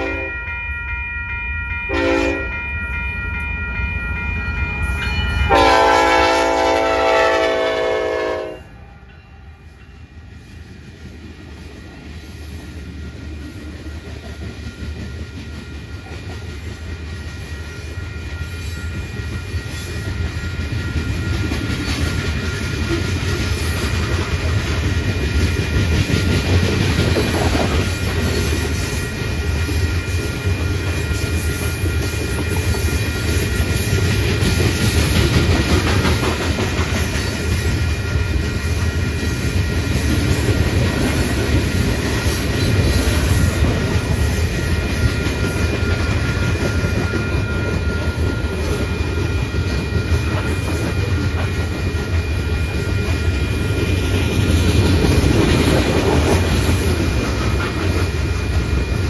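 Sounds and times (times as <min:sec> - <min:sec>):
locomotive air horn: 0:00.0 - 0:00.3, 0:01.9 - 0:02.5, 0:05.5 - 0:08.8
train wheels rumbling and clattering: 0:09.7 - 0:59.0.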